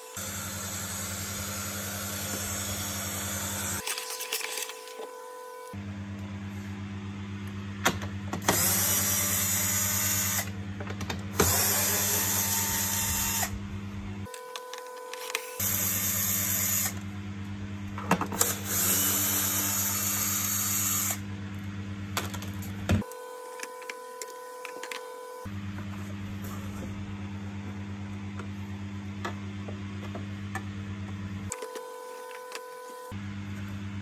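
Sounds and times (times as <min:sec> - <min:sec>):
electric screwdriver running: 0:08.4 - 0:10.5, 0:11.4 - 0:13.6, 0:14.3 - 0:17.0, 0:18.4 - 0:21.2.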